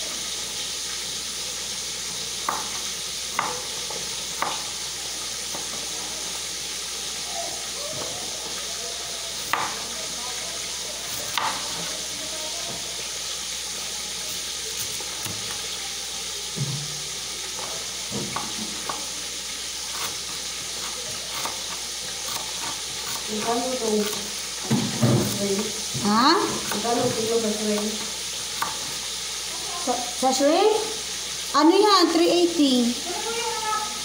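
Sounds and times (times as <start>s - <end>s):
knife slicing onions: 2.3s - 5.7s, 9.3s - 9.9s, 11.0s - 12.1s, 14.1s - 15.8s, 17.5s - 29.1s
taps on chopping board: 2.4s - 2.7s, 3.3s - 3.6s, 4.4s - 4.6s, 9.5s - 9.8s, 18.1s - 19.0s
voices: 5.7s - 19.7s, 29.4s - 34.0s.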